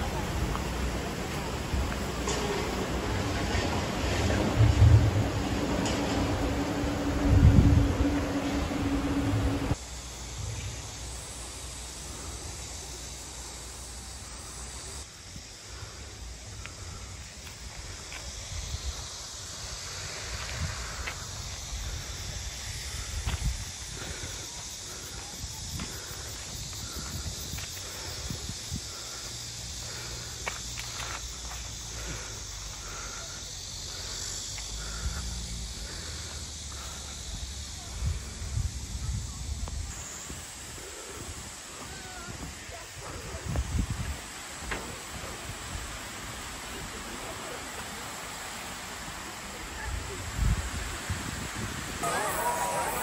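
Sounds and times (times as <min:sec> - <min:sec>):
stream water rushing: 0:00.0 - 0:09.8, 0:50.6 - 0:53.0
insect chirping: 0:00.0 - 0:53.0
outdoor hiss: 0:00.0 - 0:53.0
low rumble: 0:03.0 - 0:09.8.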